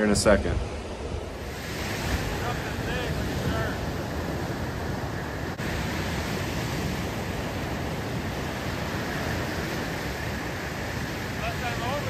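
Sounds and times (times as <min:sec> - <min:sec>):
ocean surf breaking: 0:00.0 - 0:12.0.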